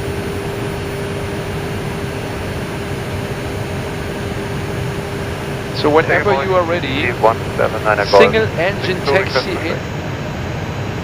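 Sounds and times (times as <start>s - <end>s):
rushing noise in aircraft cockpit: 0.0s - 9.8s
constant hum: 5.6s - 9.8s.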